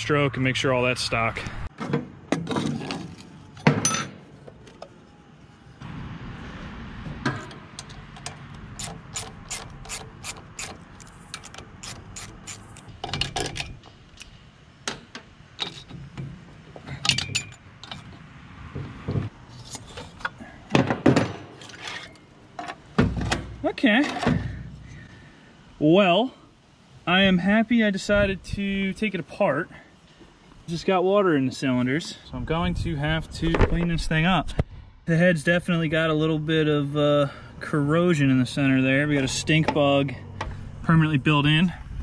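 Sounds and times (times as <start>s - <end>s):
metal tools clunking on metal: 1.8s - 4.2s, 14.9s - 18.2s
ratchet wrench clicking: 8.8s - 12.9s.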